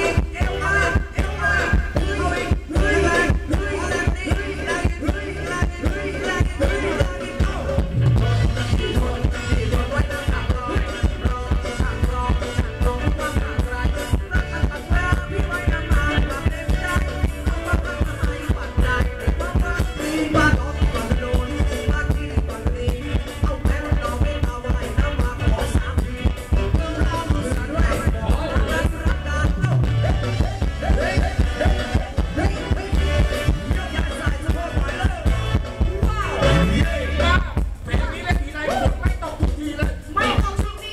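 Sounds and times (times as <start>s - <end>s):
live band music over a pa: 0.0s - 40.9s
person singing: 0.0s - 40.9s.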